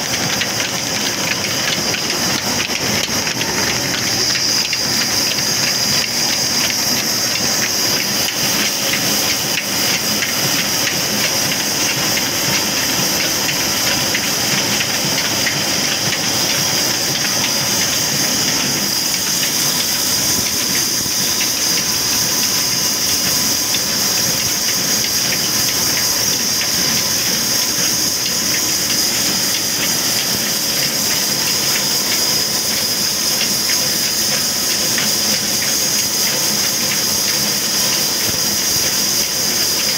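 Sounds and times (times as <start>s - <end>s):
diesel engine running: 0.0s - 31.8s
belts over spinning pulleys: 0.0s - 39.9s
loud high hiss: 0.6s - 39.9s.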